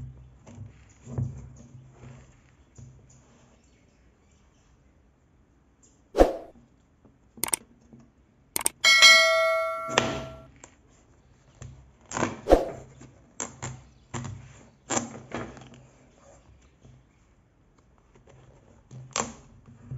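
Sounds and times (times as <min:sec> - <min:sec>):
struck metal ringing: 0:08.6 - 0:10.4.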